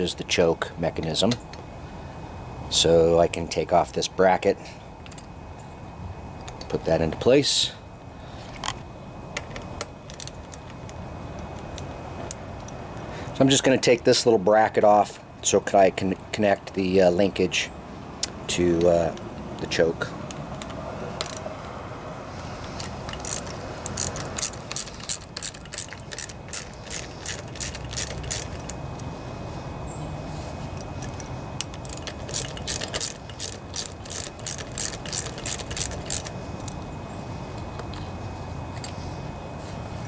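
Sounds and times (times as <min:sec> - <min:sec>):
ratchet wrench clicking: 0:20.6 - 0:21.5, 0:22.7 - 0:29.1, 0:30.8 - 0:36.8.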